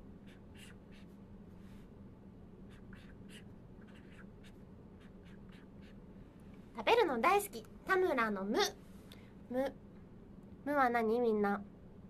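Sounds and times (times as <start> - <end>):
low steady hum: 0.0 - 12.0
pen writing on paper: 0.2 - 1.1, 2.7 - 6.0.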